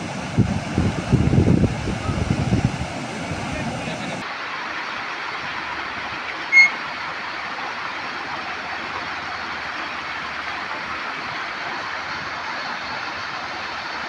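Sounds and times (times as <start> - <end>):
floodwater rushing: 0.0 - 14.0
high whistle-like tone: 6.5 - 6.8.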